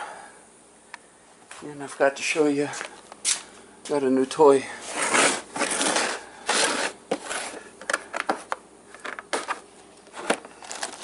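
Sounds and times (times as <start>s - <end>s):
plastic case rubbing and scraping: 4.9s - 7.6s.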